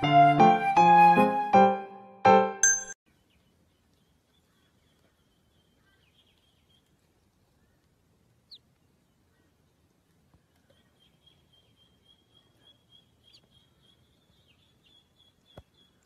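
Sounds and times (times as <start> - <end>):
piano jingle: 0.0 - 3.0
duckling peep: 3.8 - 9.8, 10.5 - 16.0.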